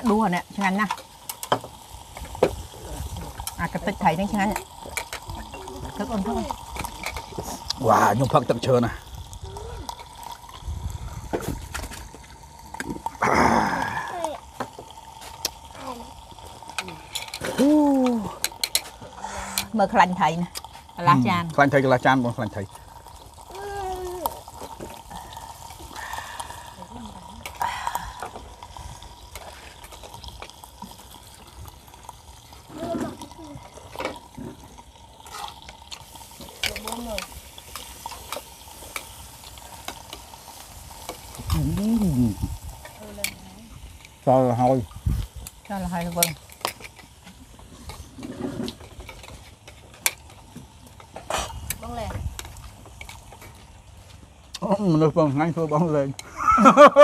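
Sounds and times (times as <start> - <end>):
food sizzling on grill pan: 0.0 - 57.0
metal tongs clinking on grill pan: 3.4 - 7.8, 16.8 - 19.8, 35.3 - 42.0, 42.7 - 44.2, 45.4 - 47.2
tongs scraping on pan: 35.2 - 53.5.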